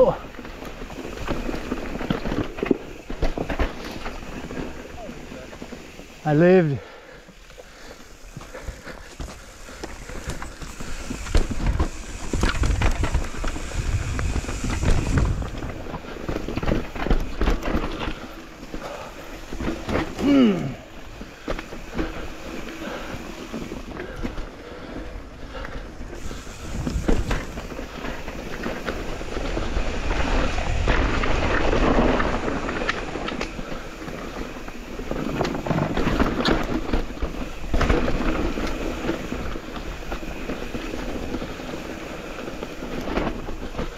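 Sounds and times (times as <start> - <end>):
bike rattling over bumps: 0.0 - 43.9
bike tyres crunching over dirt: 0.0 - 43.9
wind buffeting microphone: 8.3 - 17.6, 26.0 - 36.1.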